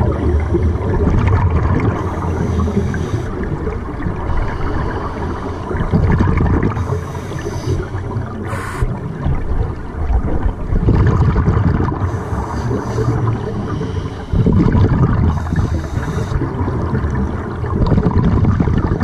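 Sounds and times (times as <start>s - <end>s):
exhaled bubbles rumbling underwater: 0.0s - 19.0s
regulator hissing inhalation: 6.8s - 7.9s, 8.5s - 8.9s, 15.3s - 16.4s.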